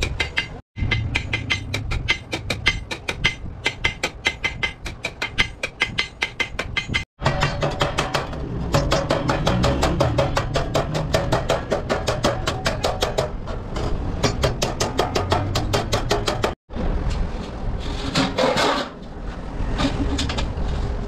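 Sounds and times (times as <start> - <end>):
hammer beating steel sheet: 0.0 - 16.6.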